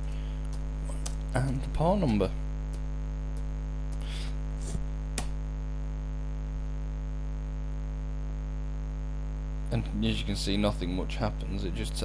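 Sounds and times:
electrical mains hum: 0:00.0 - 0:12.0
faint clicks: 0:00.4 - 0:01.3.

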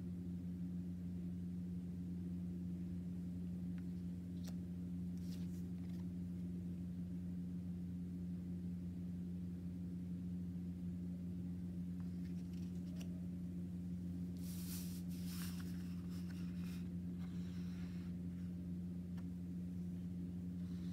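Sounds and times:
low room hum: 0:00.0 - 0:20.9
paper cards rustling: 0:03.8 - 0:06.1, 0:12.0 - 0:13.2, 0:14.4 - 0:16.9.

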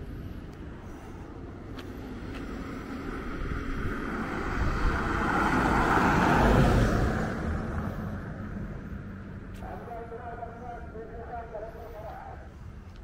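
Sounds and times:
pickup truck driving past: 0:02.5 - 0:09.3.

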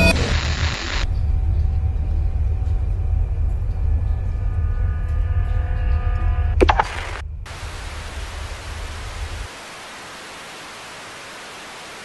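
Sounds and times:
video tape static hiss: 0:00.0 - 0:01.0, 0:06.7 - 0:12.0
low rumble: 0:00.3 - 0:09.5.

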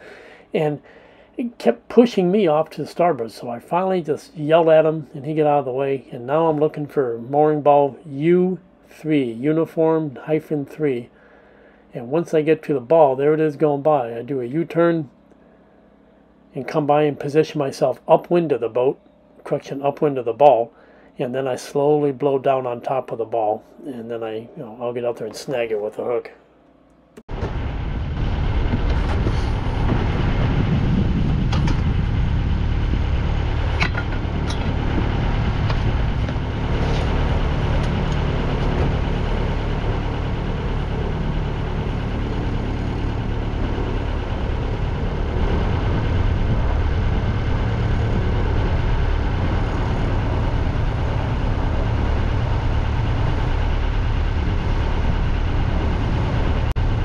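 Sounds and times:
boat engine running: 0:27.2 - 0:57.0.

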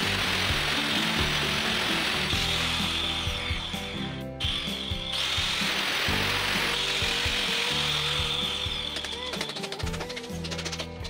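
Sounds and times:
angle grinder cutting concrete: 0:00.0 - 0:10.8
background music: 0:00.0 - 0:11.0.

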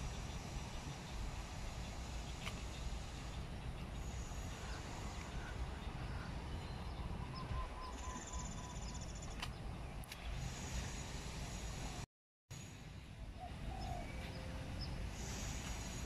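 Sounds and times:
faint bird calls: 0:04.0 - 0:09.4.

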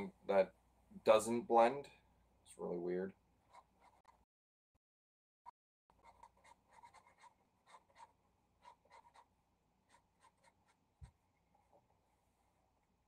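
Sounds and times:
marker scratching on paper: 0:03.5 - 0:04.2, 0:05.9 - 0:09.3, 0:09.9 - 0:10.8.

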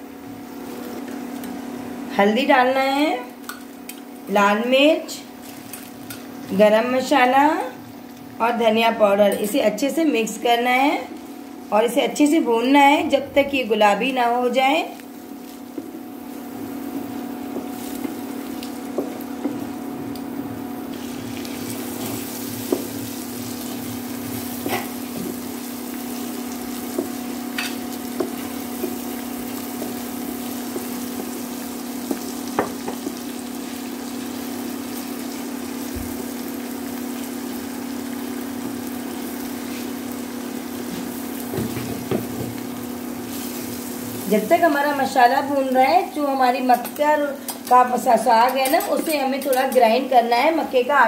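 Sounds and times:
onion sizzling in hot oil: 0:00.0 - 0:51.0
spatula stirring in pan: 0:20.9 - 0:33.7.

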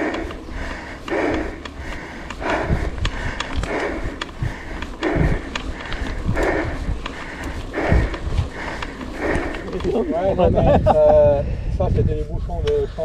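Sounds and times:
person breathing hard: 0:00.0 - 0:11.9
small clicks and rattles: 0:01.0 - 0:10.1.

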